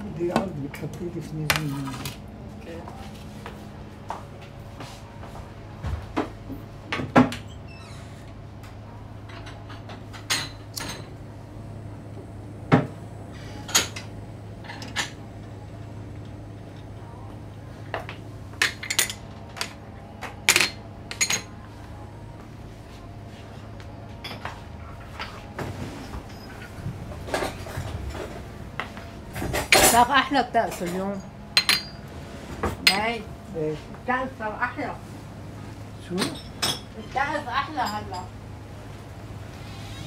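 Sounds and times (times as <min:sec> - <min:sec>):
coffee cups clinking: 0:20.4 - 0:21.5, 0:29.4 - 0:32.1.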